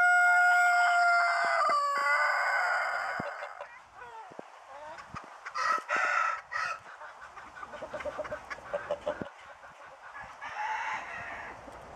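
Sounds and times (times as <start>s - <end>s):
rooster crowing: 0.0s - 3.6s, 5.6s - 6.8s, 10.2s - 11.6s
hens clucking: 0.0s - 11.7s.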